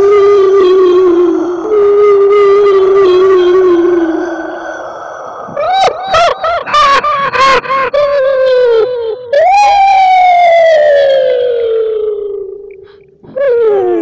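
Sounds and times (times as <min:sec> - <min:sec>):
ghostly hoots: 0:00.0 - 0:08.2
ghostly wail sliding down: 0:00.0 - 0:08.2.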